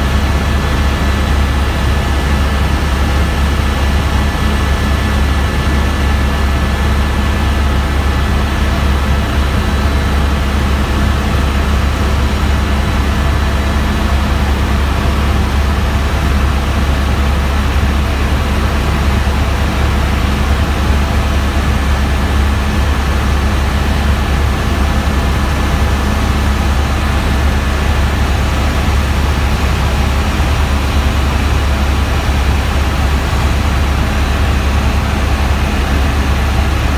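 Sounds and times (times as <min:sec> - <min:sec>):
helicopter drone inside cabin: 0:00.0 - 0:36.9.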